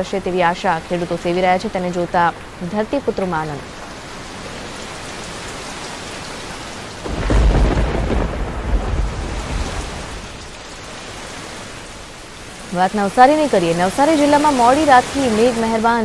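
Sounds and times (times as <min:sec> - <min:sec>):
heavy rain falling: 0:00.0 - 0:16.0
thunder rumbling: 0:06.9 - 0:15.1.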